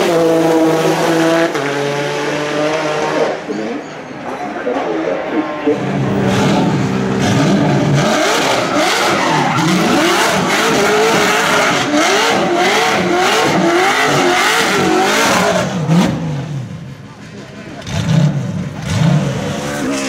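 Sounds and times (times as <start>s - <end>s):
car engine revving: 0.0s - 3.5s, 5.2s - 20.0s
tyres squealing: 7.2s - 12.0s.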